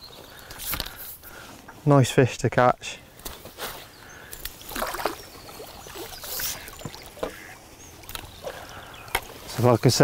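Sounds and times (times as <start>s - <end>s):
water splashing and trickling: 4.2s - 10.0s.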